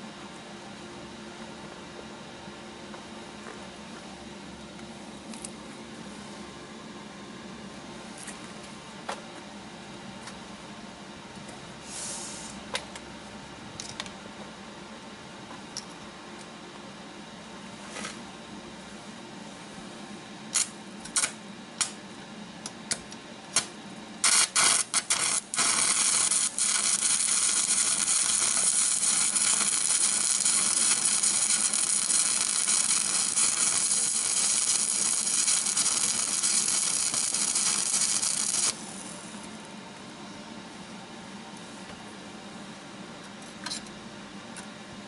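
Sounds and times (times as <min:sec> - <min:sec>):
electric arc welding crackling hiss: 0:11.8 - 0:12.6, 0:20.5 - 0:22.0, 0:23.6 - 0:39.2.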